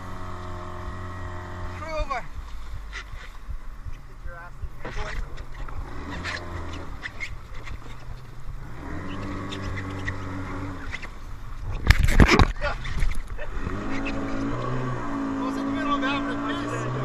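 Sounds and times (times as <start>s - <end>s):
outboard motor idling: 0.0s - 17.0s
knocks and splashes: 4.8s - 15.8s.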